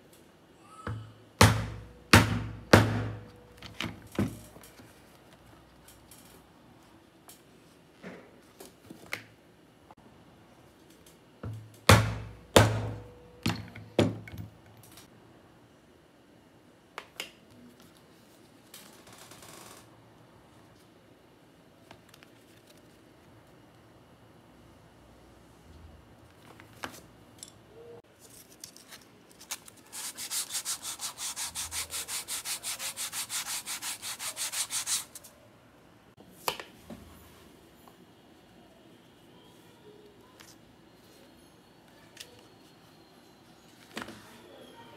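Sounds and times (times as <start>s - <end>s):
sandpaper rubbing leather: 29.9s - 35.2s.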